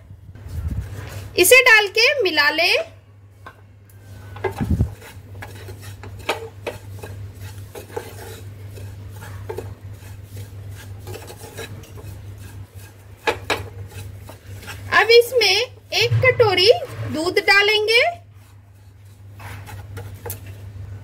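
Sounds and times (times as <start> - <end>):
steady low hum: 0.0 - 21.0
spatula scraping pan: 4.0 - 20.7.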